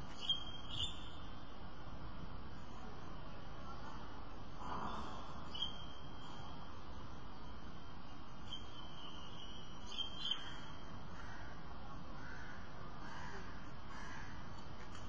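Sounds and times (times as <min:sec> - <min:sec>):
background hiss: 0:00.0 - 0:15.0
faint bird calls: 0:03.7 - 0:06.7, 0:08.4 - 0:15.0.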